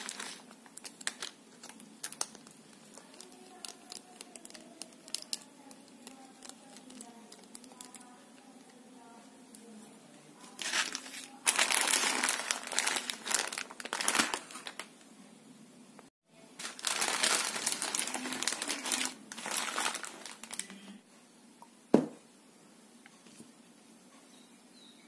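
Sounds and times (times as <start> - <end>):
plastic wrappers crinkling: 0.0 - 8.5, 10.4 - 15.0, 16.6 - 21.0.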